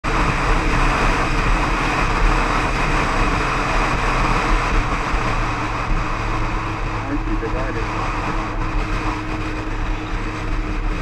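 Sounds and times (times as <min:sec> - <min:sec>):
motorcycle engine drone: 0:00.0 - 0:11.0
wind and road noise: 0:00.0 - 0:11.0.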